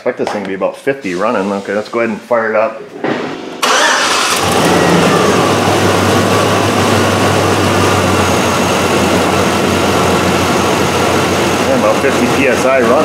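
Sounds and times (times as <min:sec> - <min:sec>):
pickup truck engine idling: 0:03.7 - 0:13.0.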